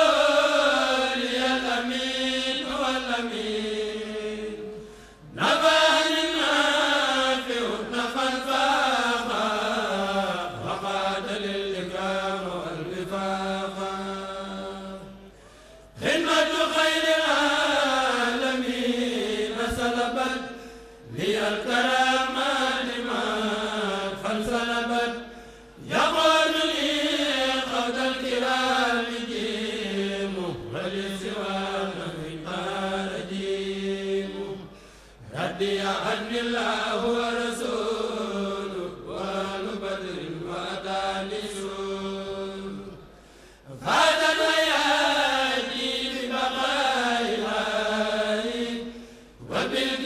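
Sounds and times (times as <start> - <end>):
men chanting: 16.0 - 20.4.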